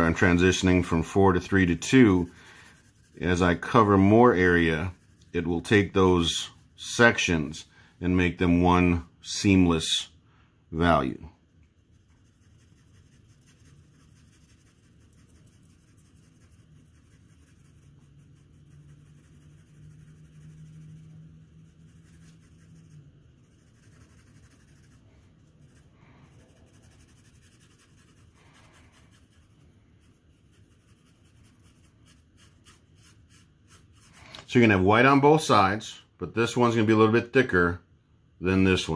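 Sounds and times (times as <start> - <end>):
pencil scratching on paper: 0.0 - 7.2, 11.4 - 34.4
steady low hum: 0.0 - 38.9.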